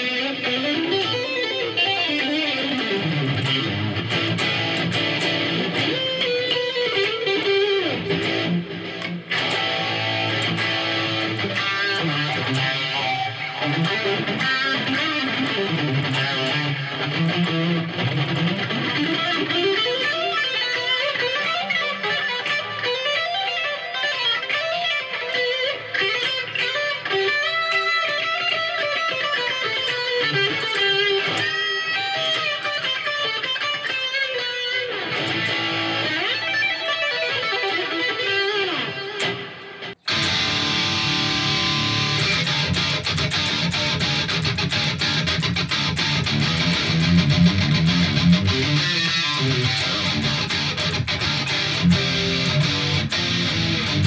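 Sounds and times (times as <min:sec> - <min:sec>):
electric guitar picked runs: 0:34.6 - 0:54.0.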